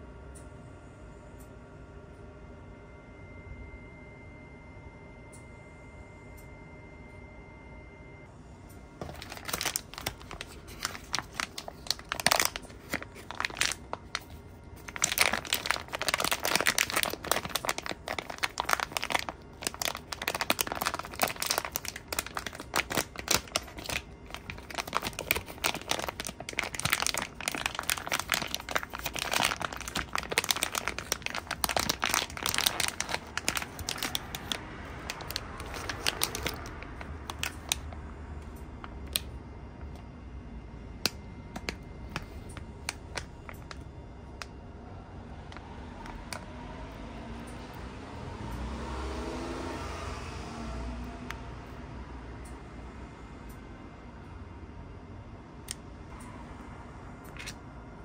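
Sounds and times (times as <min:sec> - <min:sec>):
paper and plastic crinkling: 0:09.0 - 0:38.0, 0:41.6 - 0:43.8.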